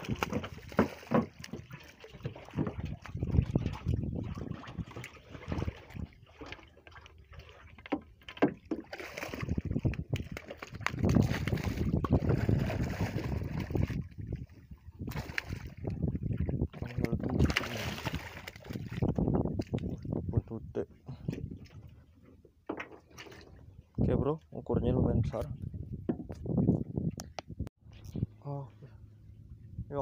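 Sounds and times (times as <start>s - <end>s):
knocks and scraping on wooden boat: 0.0s - 6.7s, 7.3s - 13.4s, 21.3s - 23.6s, 25.4s - 26.6s.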